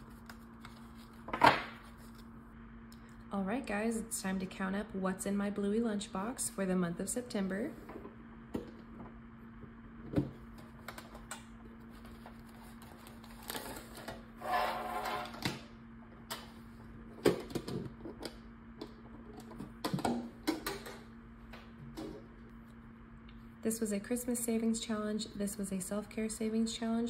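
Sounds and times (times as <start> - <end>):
paper rustling: 0.0 - 2.3
faint steady hum: 0.0 - 27.0.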